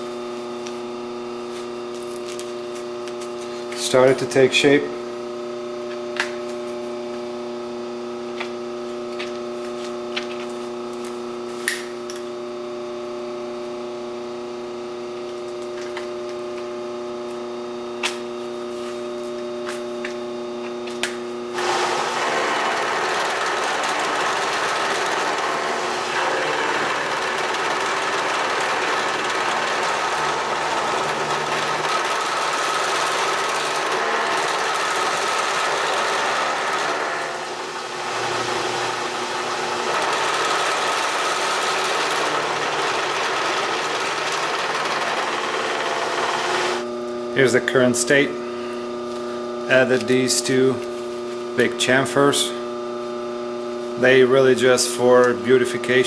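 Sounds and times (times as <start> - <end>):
milling spindle humming: 21.5 - 47.4
milling cutter cutting metal: 21.6 - 46.9.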